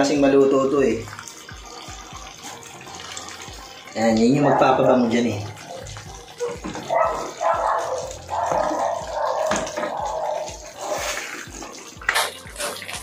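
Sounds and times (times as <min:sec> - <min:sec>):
thick sauce bubbling and popping: 0:08.1 - 0:13.0.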